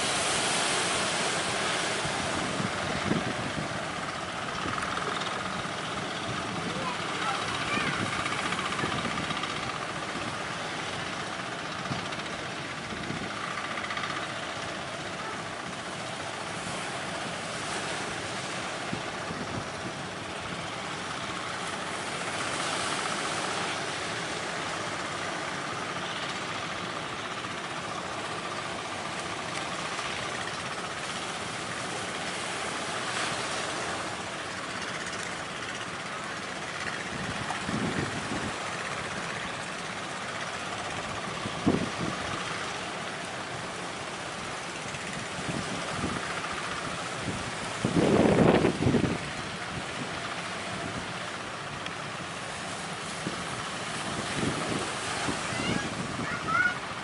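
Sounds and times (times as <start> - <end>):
boat engine running: 0.0 - 57.0
sea waves washing: 0.0 - 57.0
wind blowing: 33.5 - 57.0.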